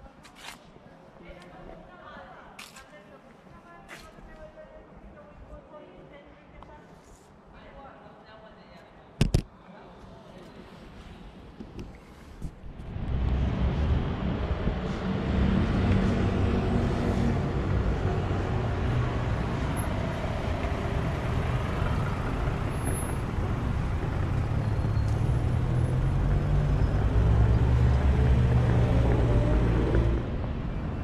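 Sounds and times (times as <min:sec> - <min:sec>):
vehicle engine rumble: 0:12.6 - 0:31.0
rushing noise: 0:12.7 - 0:31.0.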